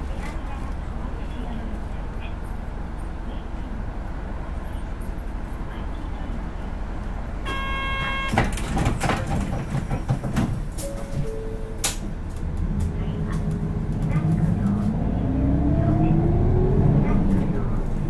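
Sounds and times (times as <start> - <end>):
bus engine idling: 0.0 - 18.0
door warning buzzer: 7.5 - 8.5.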